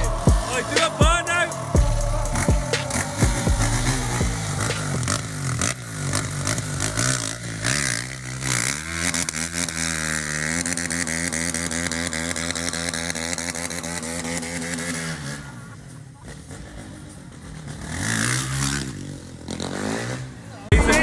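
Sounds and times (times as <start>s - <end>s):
car engine running: 0.0s - 14.7s.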